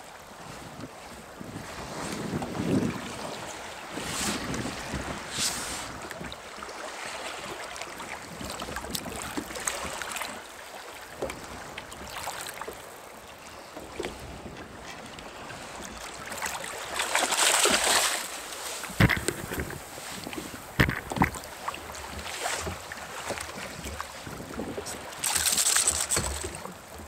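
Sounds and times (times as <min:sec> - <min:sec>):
wind on microphone: 0:00.4 - 0:06.3, 0:18.9 - 0:21.5
water splashing against kayak hull: 0:03.9 - 0:13.2, 0:13.8 - 0:27.0.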